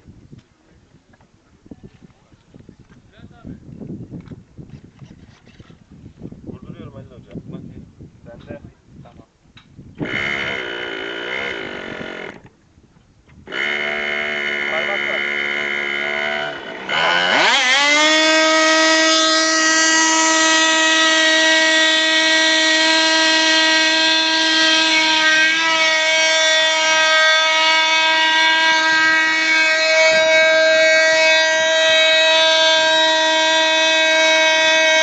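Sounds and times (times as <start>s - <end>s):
model airplane engine revving: 10.0s - 12.6s, 13.4s - 35.0s.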